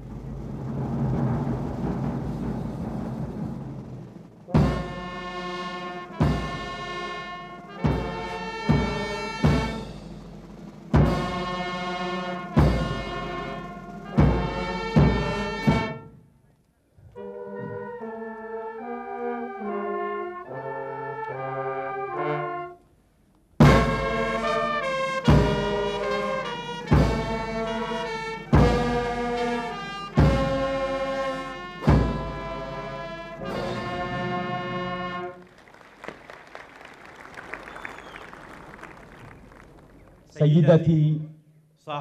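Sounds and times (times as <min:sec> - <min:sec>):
drum hits: 0:00.0 - 0:16.1, 0:23.6 - 0:24.5, 0:25.2 - 0:27.8, 0:28.4 - 0:32.7
brass ensemble playing chords: 0:04.4 - 0:16.2, 0:17.1 - 0:22.9, 0:23.6 - 0:35.8.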